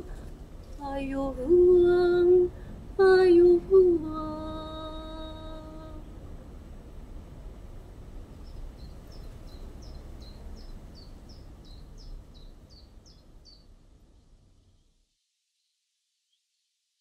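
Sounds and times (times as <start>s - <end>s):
low outdoor rumble: 0.0s - 15.0s
small bird chirping: 8.3s - 15.0s.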